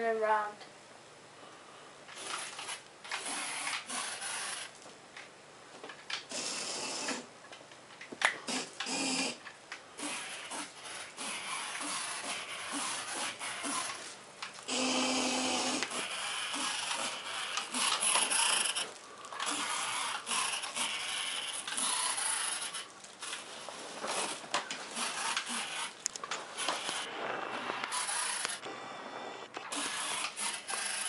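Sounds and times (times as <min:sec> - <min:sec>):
whirring motor: 0:02.2 - 0:04.8, 0:08.5 - 0:09.4, 0:10.0 - 0:14.1, 0:14.7 - 0:31.0
foil balloon rustling: 0:22.6 - 0:28.6.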